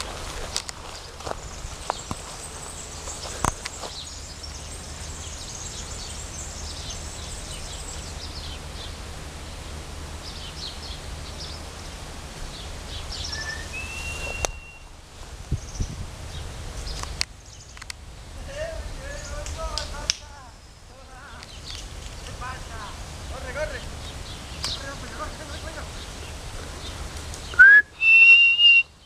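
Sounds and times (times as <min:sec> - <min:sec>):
low rumble and hiss: 0:00.0 - 0:29.0
bird chirps: 0:00.8 - 0:09.0, 0:12.5 - 0:14.9
thin whistle-like tone: 0:13.3 - 0:14.9, 0:27.6 - 0:28.9.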